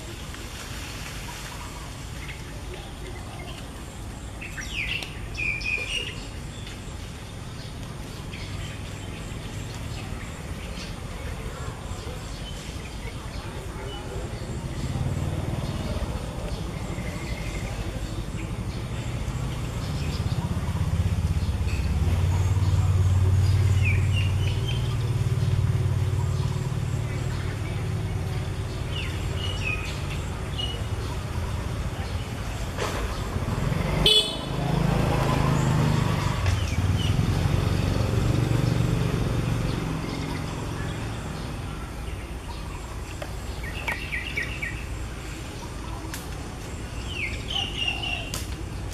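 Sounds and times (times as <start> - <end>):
low engine rumble: 0.0 - 48.9
vehicle horn toot: 34.0 - 34.6.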